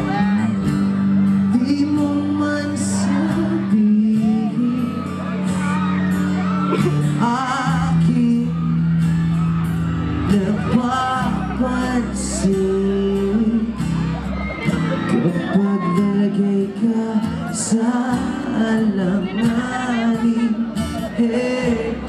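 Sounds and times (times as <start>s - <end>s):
live pop band playing: 0.0s - 22.0s
person singing with vibrato: 1.5s - 5.4s, 14.9s - 22.0s.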